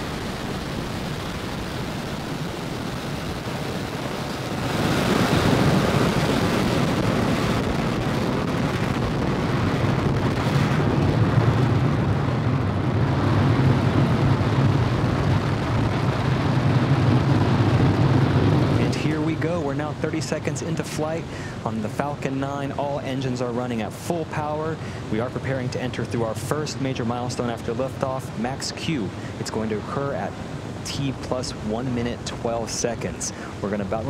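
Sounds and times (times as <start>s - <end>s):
rocket engines rumbling: 0.0s - 34.0s.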